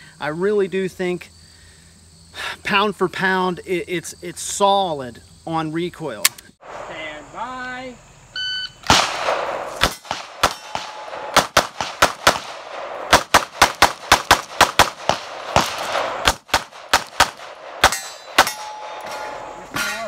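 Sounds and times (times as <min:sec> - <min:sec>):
pistol shots: 0:08.8 - 0:19.3
steel target ringing: 0:17.8 - 0:20.0.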